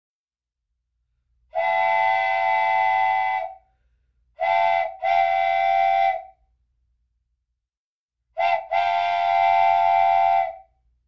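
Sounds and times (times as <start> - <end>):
steam locomotive whistle blasts: 1.6 - 3.6, 4.4 - 6.4, 8.4 - 10.7.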